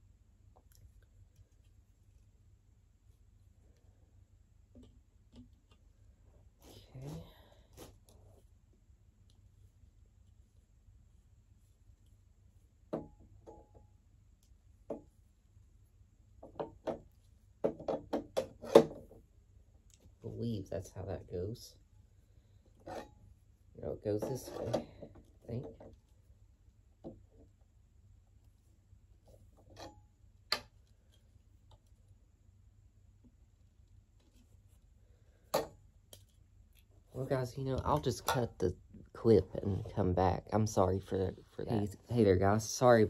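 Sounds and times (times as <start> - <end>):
faint rustles and ticks: 0.4 - 15.8.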